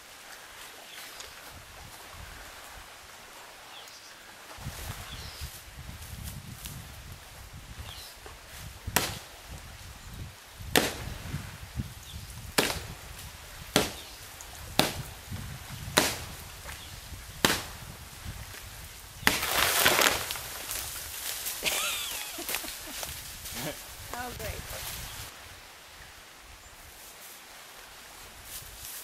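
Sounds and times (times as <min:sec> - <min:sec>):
axe chopping tree trunk: 0:09.0 - 0:09.2, 0:10.7 - 0:11.1, 0:12.6 - 0:12.9, 0:13.7 - 0:14.1, 0:14.8 - 0:15.1, 0:15.9 - 0:16.3, 0:17.4 - 0:17.8, 0:19.2 - 0:20.7.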